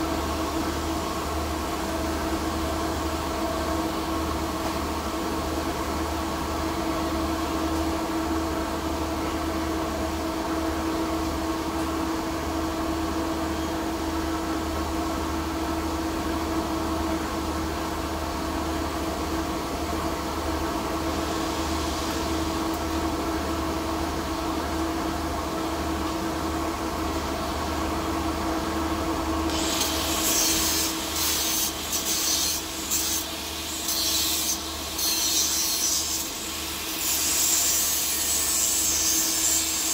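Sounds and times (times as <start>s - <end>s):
angle grinder grinding steel: 29.5s - 39.9s.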